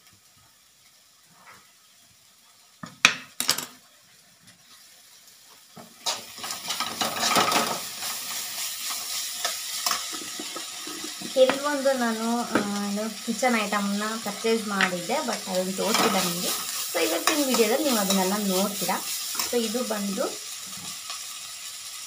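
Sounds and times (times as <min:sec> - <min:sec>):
sizzle of frying in oil: 0:00.0 - 0:22.0
metal utensils clattering on pan: 0:06.0 - 0:08.0, 0:15.8 - 0:19.7.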